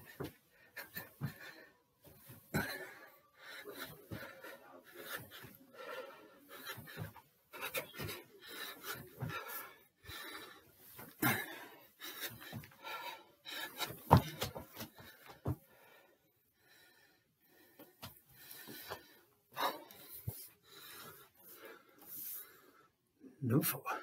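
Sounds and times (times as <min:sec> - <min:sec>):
man panting: 0:00.0 - 0:23.0
feet thumping on landing: 0:10.9 - 0:15.6.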